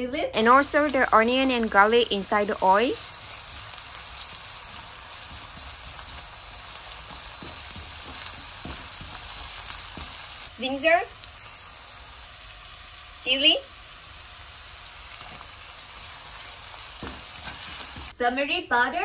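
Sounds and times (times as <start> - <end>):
onions sizzling in hot oil: 0.4 - 18.2
spatula stirring and scraping pan: 1.6 - 10.5, 14.7 - 18.2.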